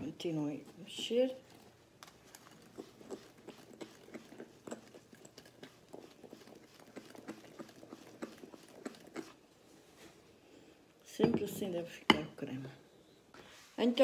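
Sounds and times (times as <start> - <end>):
whisk beating cream in bowl: 0.0 - 9.5.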